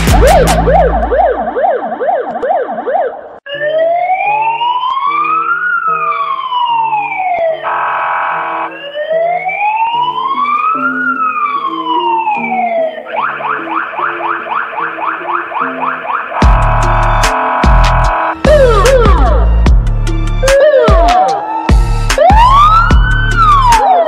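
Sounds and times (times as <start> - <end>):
background music: 0.0 - 2.3, 3.5 - 24.0
siren wailing: 0.0 - 19.6, 20.3 - 24.0
horn blast: 16.3 - 19.6.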